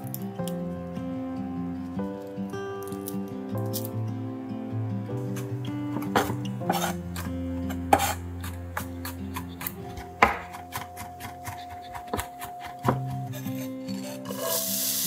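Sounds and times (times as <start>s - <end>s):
knife chopping on wooden board: 6.0s - 13.3s.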